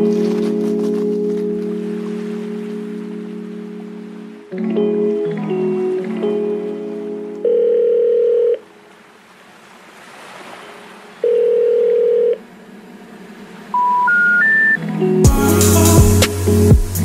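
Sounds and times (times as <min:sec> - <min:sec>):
telephone ringback tone: 0:07.4 - 0:08.6, 0:11.2 - 0:12.4, 0:13.8 - 0:14.8
rising short beeps: 0:13.8 - 0:14.8.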